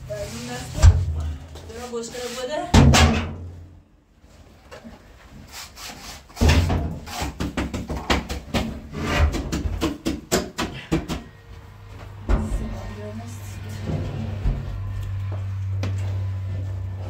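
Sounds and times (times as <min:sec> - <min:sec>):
scraping on a hard surface: 0:01.7 - 0:02.7, 0:08.9 - 0:09.5.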